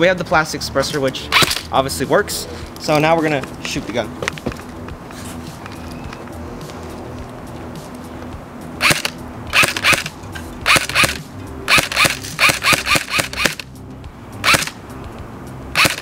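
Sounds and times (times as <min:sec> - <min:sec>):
airsoft gun firing bursts: 0:08.8 - 0:10.1, 0:10.7 - 0:13.6, 0:14.4 - 0:14.8, 0:15.8 - 0:16.0.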